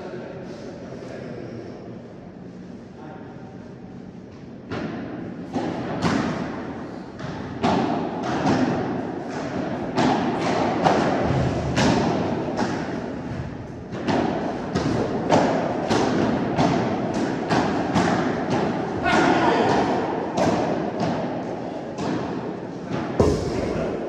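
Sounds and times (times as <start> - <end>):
ball struck by rackets: 4.7 - 13.0, 19.7 - 24.0
ball bouncing: 22.9 - 24.0.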